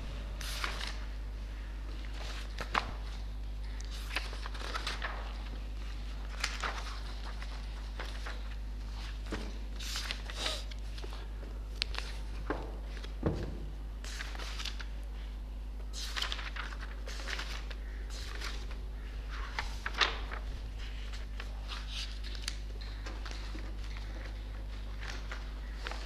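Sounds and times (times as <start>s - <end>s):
paper pages turning: 0.4s - 1.1s, 1.9s - 13.2s, 14.0s - 15.3s, 15.9s - 26.0s.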